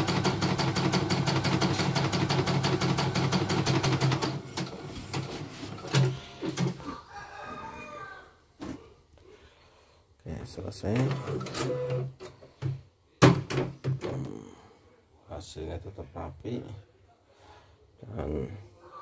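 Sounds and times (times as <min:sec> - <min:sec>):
embroidery machine stitching: 0:00.0 - 0:06.7.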